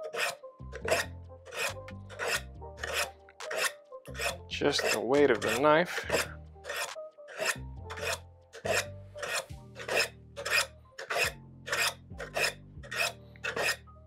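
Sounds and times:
knife rasping on sharpening rods: 0:00.0 - 0:13.8.

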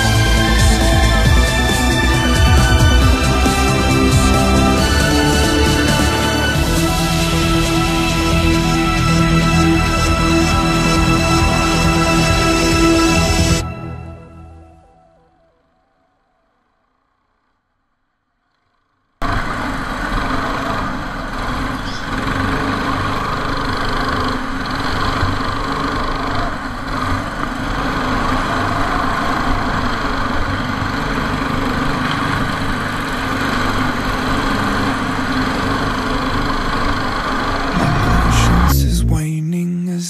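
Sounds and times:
go-kart engines racing: 0:19.2 - 0:38.8.

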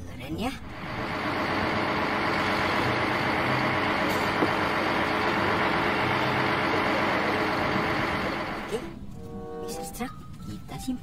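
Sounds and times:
diesel truck engine running: 0:00.6 - 0:08.9.

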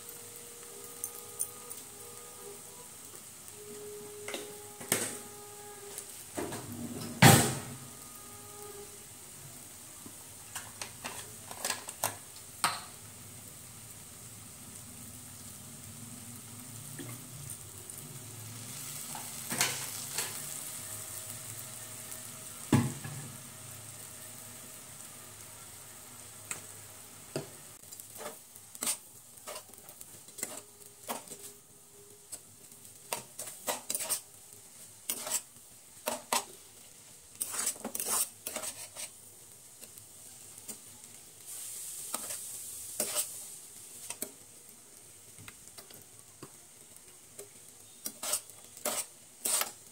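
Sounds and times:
noodles sizzling in a frying pan: 0:00.0 - 0:49.9
utensils clicking and scraping pan: 0:10.5 - 0:12.8, 0:27.9 - 0:31.6, 0:32.3 - 0:36.6, 0:37.3 - 0:39.2, 0:42.0 - 0:44.4, 0:45.4 - 0:49.9.

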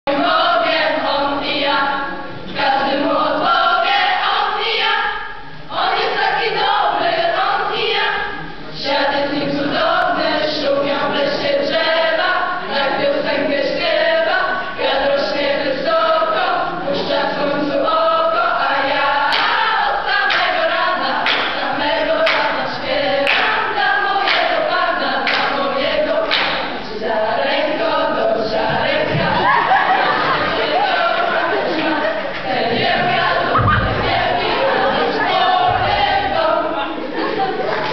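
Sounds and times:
youth choir singing: 0:00.1 - 0:37.9
hand claps: 0:19.3 - 0:19.6, 0:20.3 - 0:20.5, 0:21.2 - 0:21.6, 0:22.2 - 0:22.5, 0:23.3 - 0:23.5, 0:24.2 - 0:24.6, 0:25.2 - 0:25.6, 0:26.3 - 0:26.6.

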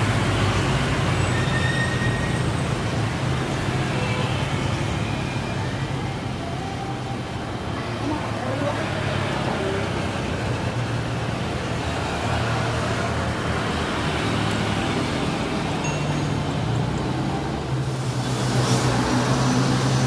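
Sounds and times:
jet rolling by with hiss: 0:17.8 - 0:20.0.

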